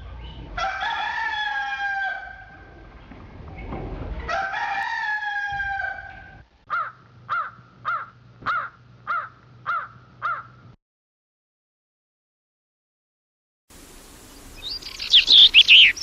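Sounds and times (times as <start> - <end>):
rooster crowing: 0.6 - 2.7, 4.3 - 10.4
bird chirping: 14.0 - 16.0.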